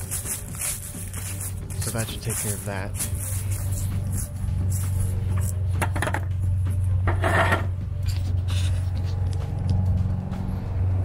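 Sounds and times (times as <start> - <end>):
footsteps crunching dry leaves: 0.0 - 5.7.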